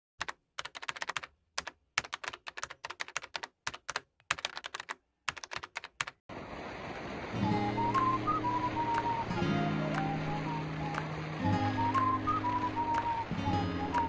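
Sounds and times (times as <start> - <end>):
keyboard typing: 0.2 - 6.2.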